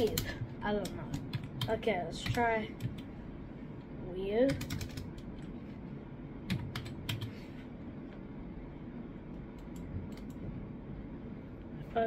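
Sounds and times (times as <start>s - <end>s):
computer keyboard typing: 0.0s - 3.1s, 4.4s - 5.5s, 6.5s - 7.4s, 9.5s - 10.4s.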